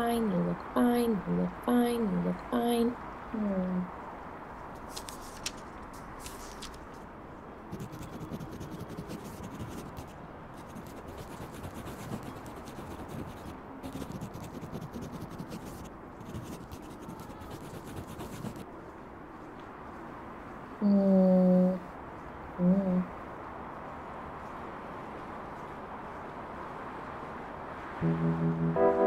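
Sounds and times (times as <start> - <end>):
marker scratching on paper: 7.7 - 18.6.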